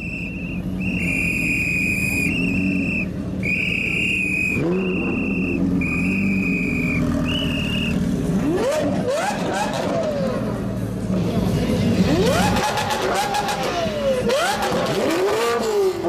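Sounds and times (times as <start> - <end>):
engine throttle blip: 0.0 - 8.1
whistle blasts: 0.0 - 8.1
sports car engine rumbling: 0.0 - 16.0.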